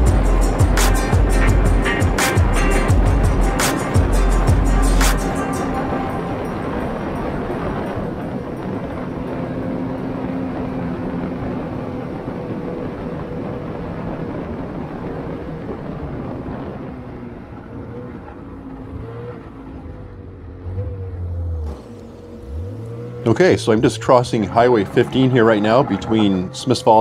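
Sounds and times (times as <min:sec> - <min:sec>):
snowmobile engine running: 0:00.0 - 0:27.0.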